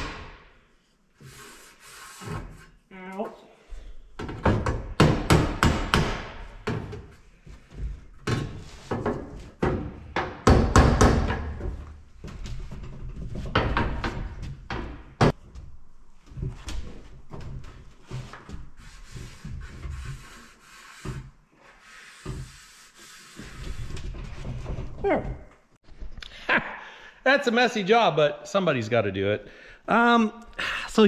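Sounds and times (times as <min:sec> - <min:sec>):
knocks and bangs on fiberglass: 0:08.2 - 0:11.8.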